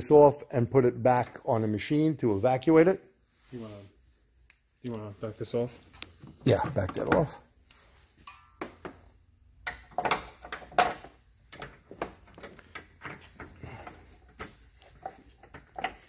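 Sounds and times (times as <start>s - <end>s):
clicks and rustles of hose coupler: 9.6s - 16.0s.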